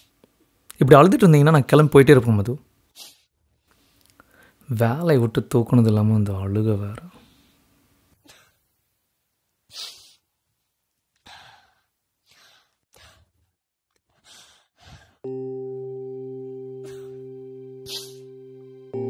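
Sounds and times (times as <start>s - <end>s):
low sustained musical chord: 15.2s - 19.0s.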